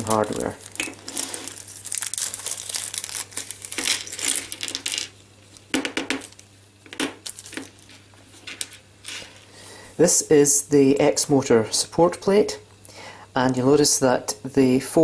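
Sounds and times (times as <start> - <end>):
plastic bag crinkling: 0.0 - 6.5, 7.2 - 9.5.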